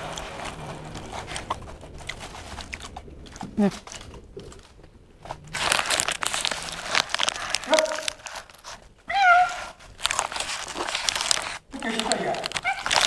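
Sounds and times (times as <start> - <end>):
paper wrapper crinkling: 0.0 - 13.0
cat meowing: 9.0 - 9.8, 12.0 - 13.0.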